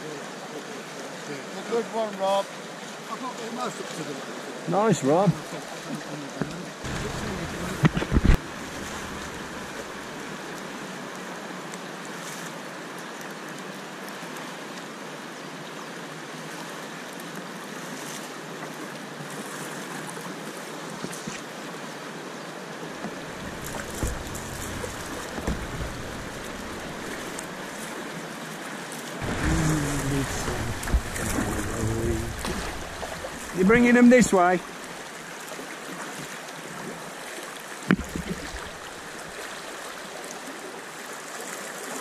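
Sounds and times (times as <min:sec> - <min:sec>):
river water rushing: 0:05.4 - 0:12.3, 0:22.6 - 0:42.0
soft knocks and splashes: 0:06.4 - 0:10.3, 0:23.0 - 0:27.8, 0:29.2 - 0:35.0, 0:37.8 - 0:39.8.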